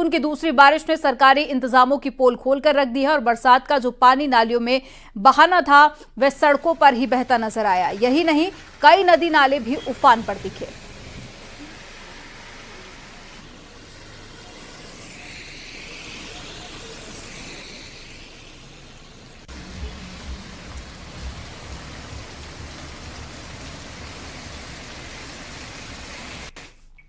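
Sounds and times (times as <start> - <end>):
heavy rain hissing: 6.6 - 26.8
cars driving on wet road: 8.3 - 14.2, 19.4 - 26.6.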